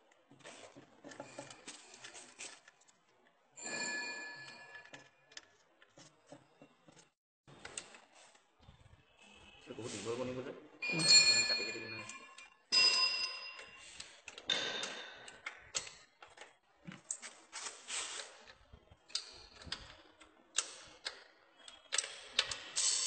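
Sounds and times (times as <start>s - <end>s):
spanner clinking on metal: 10.8s - 13.8s.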